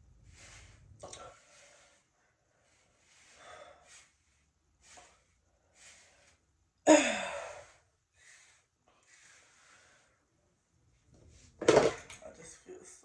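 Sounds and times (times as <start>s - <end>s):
woman breathing: 0.2s - 10.4s
woman sighing: 6.8s - 7.8s.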